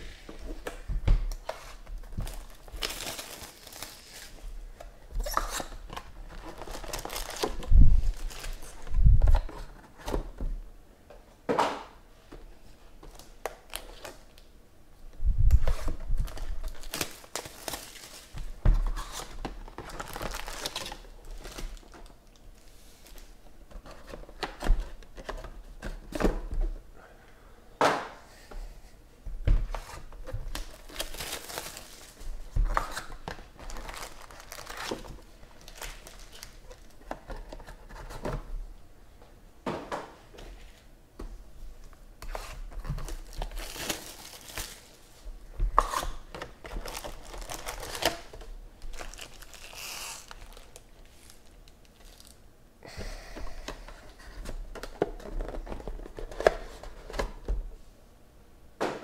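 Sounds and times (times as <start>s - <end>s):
foil packs crinkling: 1.4s - 4.4s, 5.2s - 9.0s, 15.7s - 22.4s, 30.2s - 37.7s, 42.3s - 45.2s, 45.9s - 52.4s.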